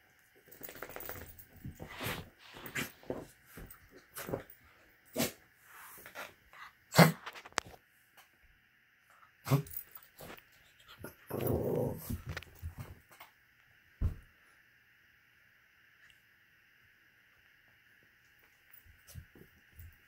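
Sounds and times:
animal growling: 0:11.0 - 0:12.2.

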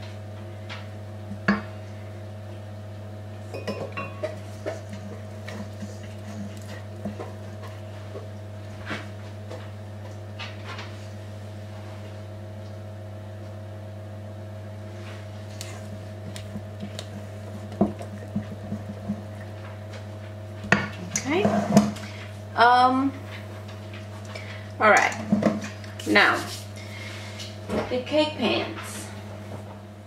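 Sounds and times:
steady low hum: 0:00.0 - 0:30.0
utensils knocking against bowl: 0:03.5 - 0:05.8.

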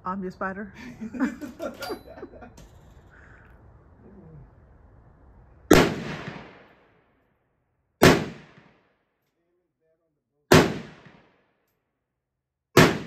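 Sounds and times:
rifle shots with echo: 0:05.7 - 0:06.9, 0:08.0 - 0:09.0, 0:10.5 - 0:11.6, 0:12.8 - 0:13.0.

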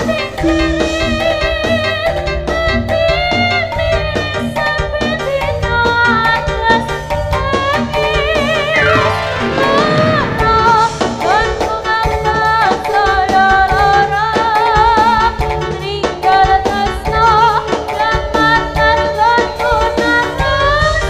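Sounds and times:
percussion: 0:00.0 - 0:21.0
drum strokes: 0:08.8 - 0:11.4.

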